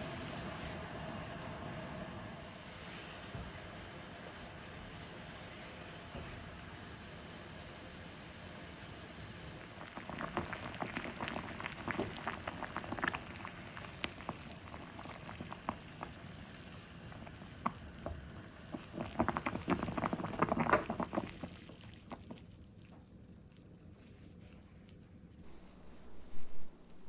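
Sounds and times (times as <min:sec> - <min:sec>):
sugar syrup bubbling: 0:05.4 - 0:25.5.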